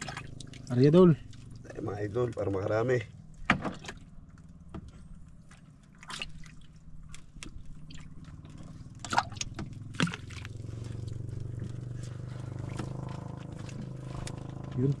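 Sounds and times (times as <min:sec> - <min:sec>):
water dripping and splashing: 0:00.0 - 0:14.8
low steady hum: 0:00.0 - 0:15.0.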